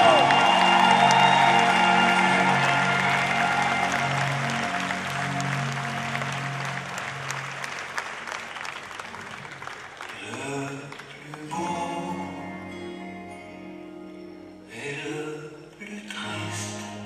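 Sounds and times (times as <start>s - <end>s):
audience applauding: 0.0s - 11.9s
background music: 0.0s - 17.0s.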